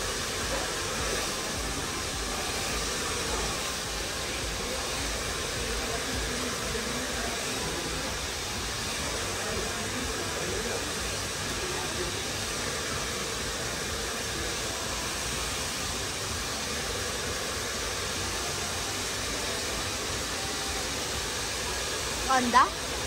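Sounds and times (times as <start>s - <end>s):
hair dryer blowing: 0.0s - 23.0s.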